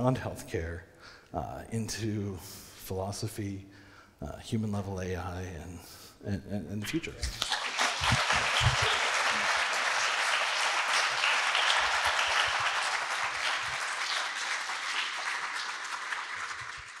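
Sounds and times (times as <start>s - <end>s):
audience applauding: 7.3s - 17.0s.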